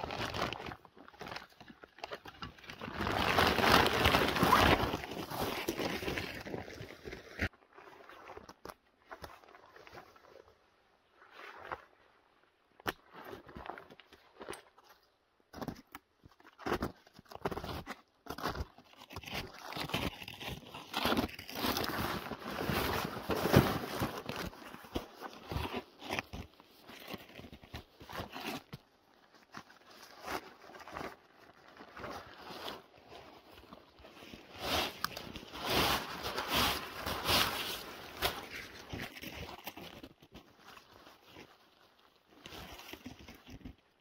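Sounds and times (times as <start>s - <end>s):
nylon fabric rustling and scraping: 2.5s - 8.3s, 18.8s - 44.0s.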